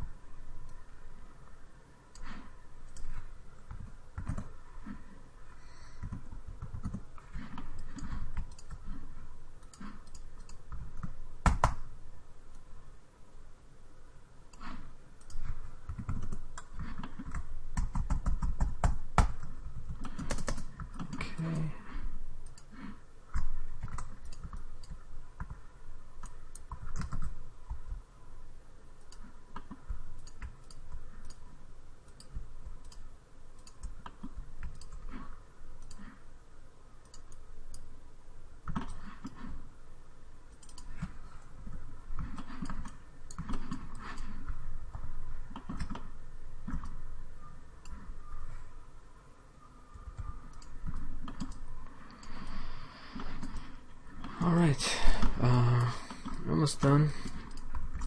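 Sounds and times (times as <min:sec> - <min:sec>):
mouse and keyboard clicking: 0:02.1 - 0:05.0, 0:06.0 - 0:11.9, 0:14.5 - 0:21.5, 0:23.3 - 0:25.6, 0:26.2 - 0:28.0, 0:29.0 - 0:31.5, 0:32.1 - 0:36.2, 0:38.6 - 0:39.6, 0:40.5 - 0:48.6, 0:49.9 - 0:54.4.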